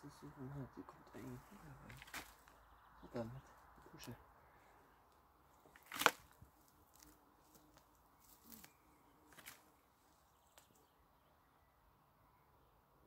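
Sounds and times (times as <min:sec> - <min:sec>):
hand digging in soil: 0:05.6 - 0:09.7.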